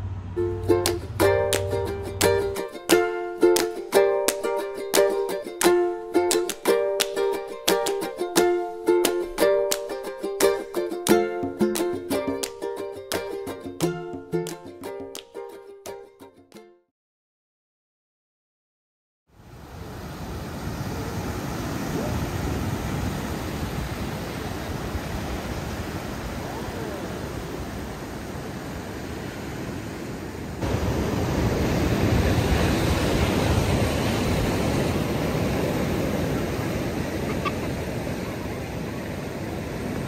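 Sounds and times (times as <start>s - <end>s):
sea surf washing onto beach: 0.0s - 14.6s, 19.4s - 40.0s.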